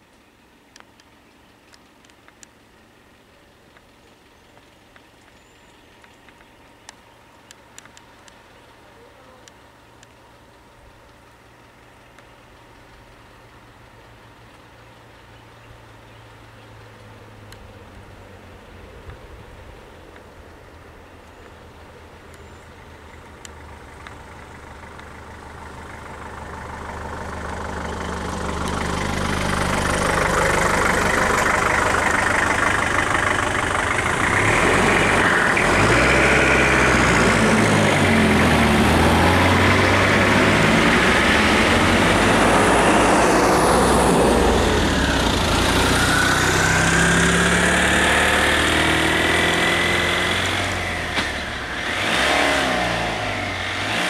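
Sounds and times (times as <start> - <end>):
truck engine running: 20.4 - 54.0.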